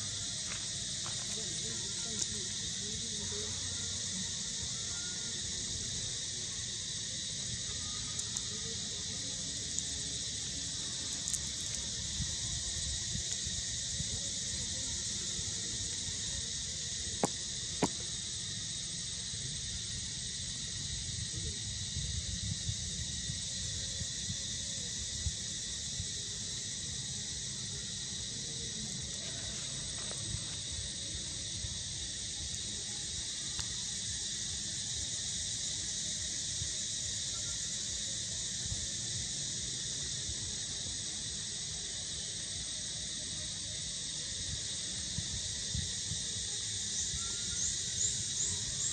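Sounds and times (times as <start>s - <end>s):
insect chorus drone: 0.0s - 48.9s.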